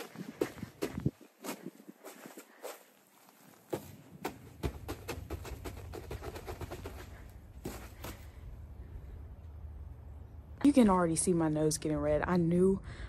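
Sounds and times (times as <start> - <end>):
boots stomping on snow: 0.0 - 8.3.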